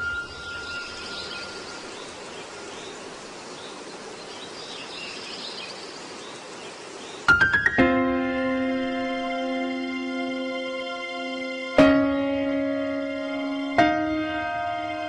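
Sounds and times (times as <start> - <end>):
faint high chirps: 0.0 - 3.3
outdoor ambient noise: 0.0 - 15.0
music: 7.3 - 15.0.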